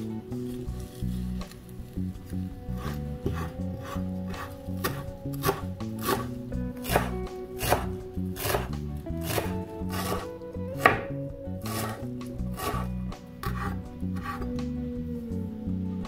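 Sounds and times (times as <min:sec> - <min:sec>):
knife chopping on wooden board: 0:02.8 - 0:14.5.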